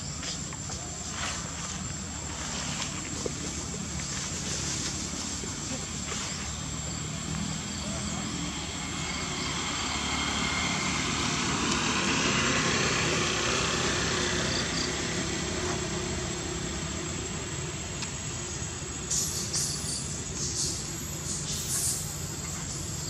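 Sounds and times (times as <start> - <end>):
high insect chirps: 0.0 - 23.0
vehicle engine passing: 1.6 - 18.8.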